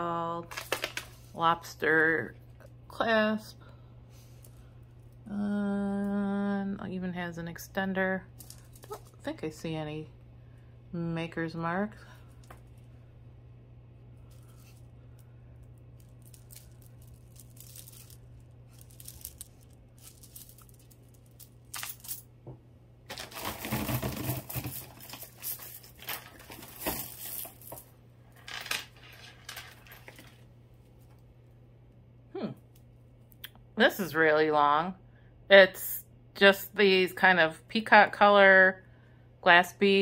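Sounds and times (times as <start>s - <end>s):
faint low hum: 0.0s - 40.0s
jewelry chains and beads clinking: 8.3s - 9.3s, 16.0s - 22.3s, 23.1s - 30.4s
rustling: 16.0s - 22.2s.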